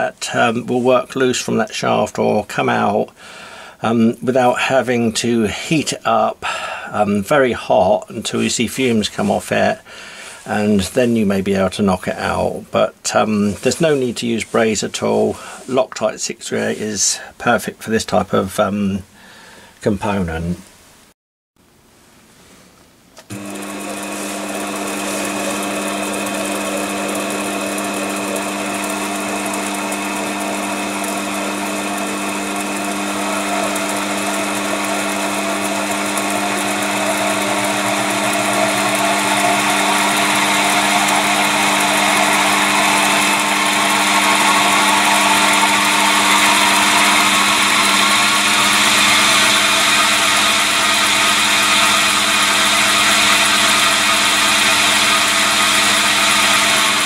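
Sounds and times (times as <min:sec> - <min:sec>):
electric motor whine rising: 0:23.2 - 0:57.0
steady hum: 0:33.6 - 0:55.8.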